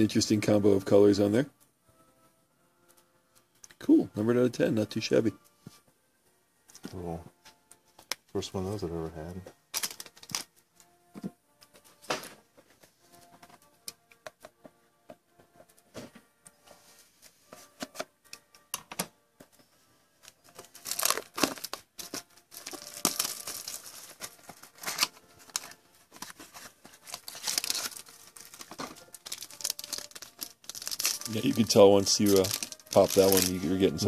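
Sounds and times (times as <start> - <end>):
card pack clicks and rustles: 9.7 - 10.5, 20.2 - 34.0
wrapper crinkling and tearing: 9.7 - 10.5, 20.2 - 34.0.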